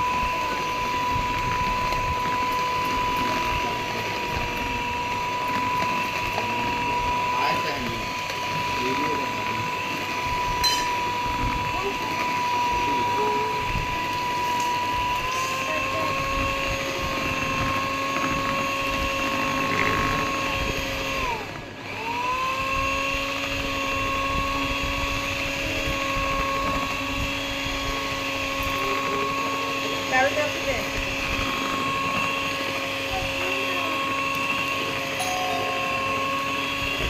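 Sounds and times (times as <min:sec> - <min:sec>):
electric hand mixer whisking batter: 0:00.0 - 0:37.0.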